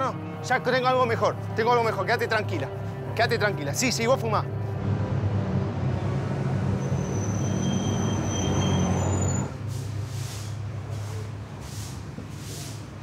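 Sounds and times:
street hum: 0.0 - 13.0
heavy vehicle engine rumble: 4.4 - 13.0
high brake squeal: 6.8 - 9.7.

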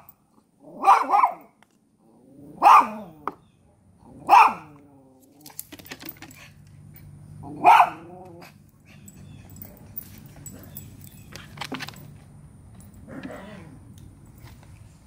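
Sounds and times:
small dog barking: 0.7 - 1.5, 2.6 - 3.2, 4.2 - 4.8, 7.4 - 8.4.

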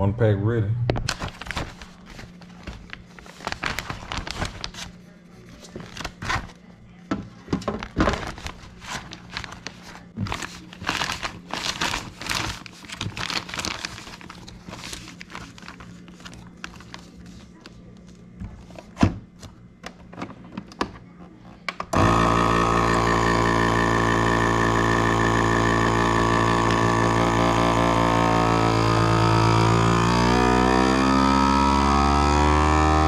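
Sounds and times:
vacuum sealer pump humming: 21.7 - 33.0.

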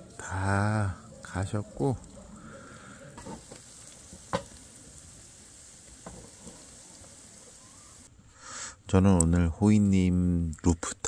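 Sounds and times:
pancake sizzling in a frying pan: 2.4 - 8.1.

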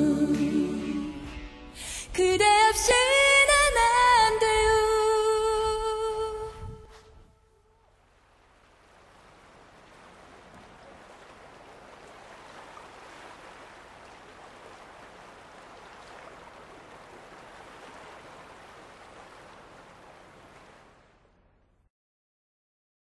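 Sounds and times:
sea waves washing on shore: 4.9 - 21.8.

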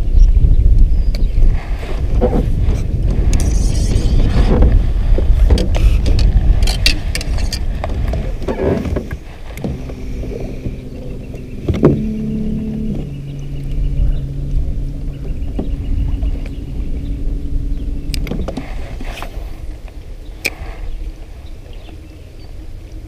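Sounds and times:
wind buffeting microphone: 0.0 - 23.0
electric trolling motor hum: 2.5 - 20.4
rod and reel clicks and knocks: 5.5 - 9.8.

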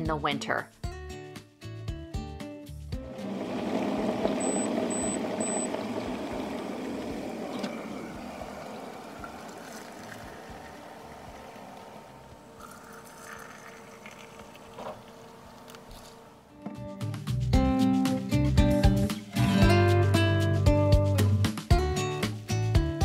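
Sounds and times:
electric kettle boiling: 3.1 - 16.2
water pouring into mugs: 7.7 - 15.2.

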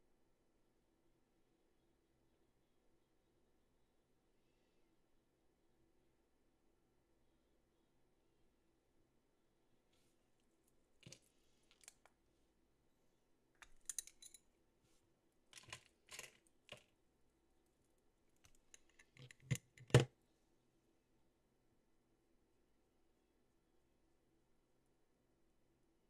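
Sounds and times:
plastic clicks and taps: 18.5 - 20.1.

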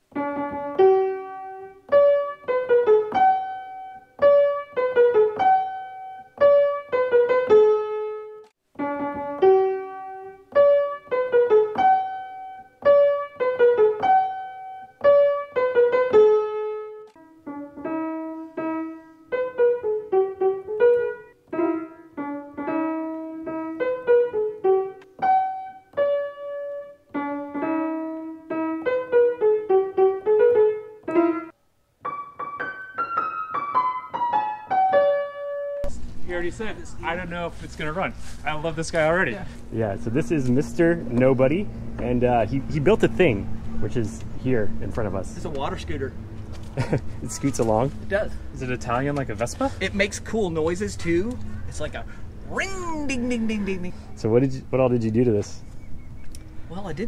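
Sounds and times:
solo piano melody: 0.0 - 37.3.

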